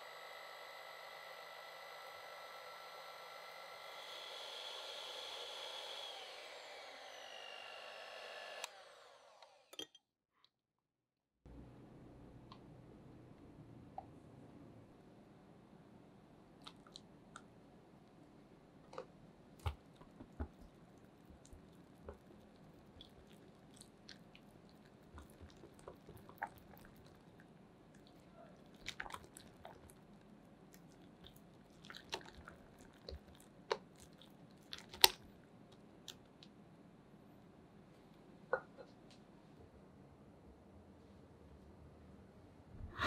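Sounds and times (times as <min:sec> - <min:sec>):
squishy food handling: 0:19.0 - 0:36.3.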